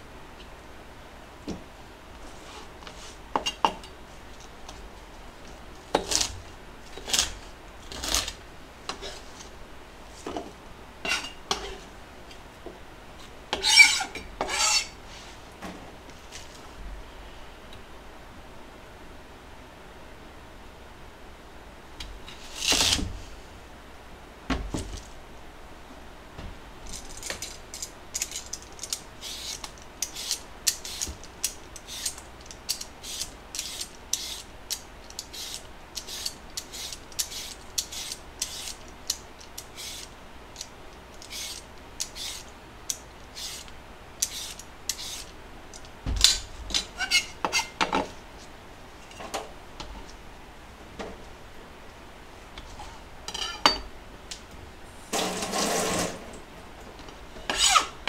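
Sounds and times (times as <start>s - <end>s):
vegetable peeler scraping: 5.9s - 9.5s, 13.5s - 15.0s, 28.2s - 42.5s, 43.3s - 45.3s, 46.8s - 47.8s, 57.5s - 58.0s.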